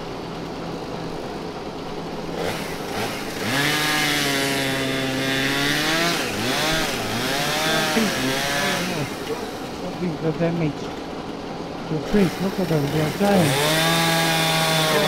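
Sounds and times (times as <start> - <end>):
chainsaw revving: 2.3 - 10.0, 12.0 - 15.0.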